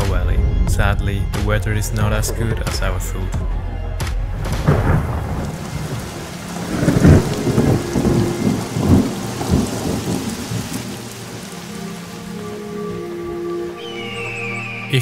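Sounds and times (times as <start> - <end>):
rolling thunder: 4.3 - 12.2
rain hissing: 4.4 - 15.0.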